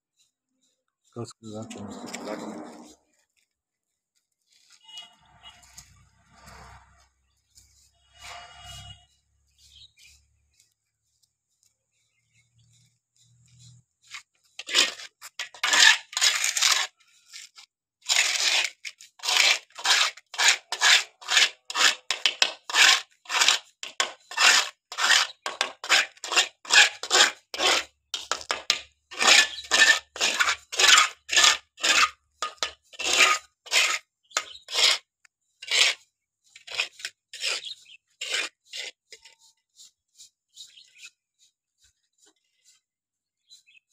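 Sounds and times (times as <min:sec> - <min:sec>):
trowel scraping cement in metal pan: 0:00.2 - 0:03.5, 0:04.4 - 0:10.2, 0:13.6 - 0:41.2.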